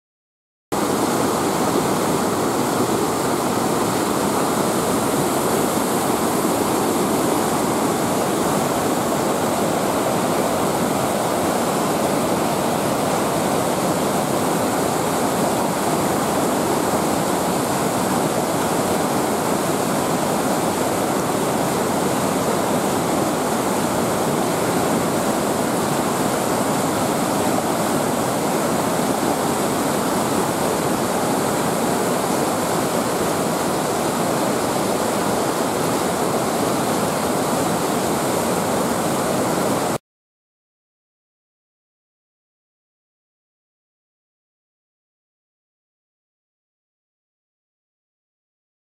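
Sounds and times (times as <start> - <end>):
river rushing over boulders: 0.8 - 40.0
waterfall crashing: 0.8 - 40.0.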